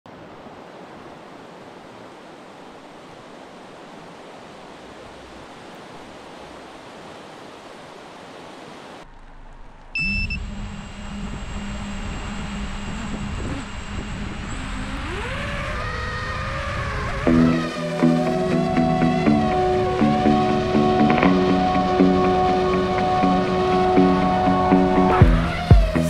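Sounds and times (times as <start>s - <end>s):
river water rushing: 0.1s - 9.7s, 17.2s - 26.0s
motor hum with low tone: 9.1s - 16.2s
high double tone: 9.9s - 15.4s.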